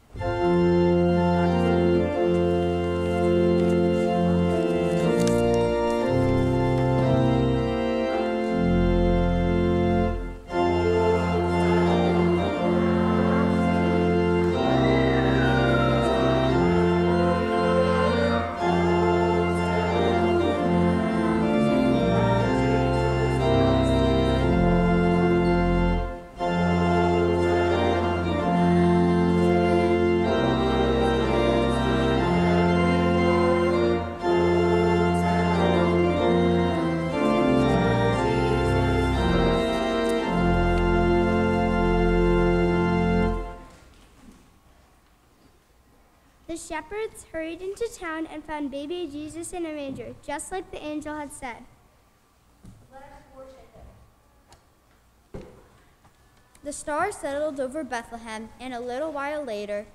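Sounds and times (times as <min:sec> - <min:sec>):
pipe organ playing held chords: 0:00.0 - 0:43.9.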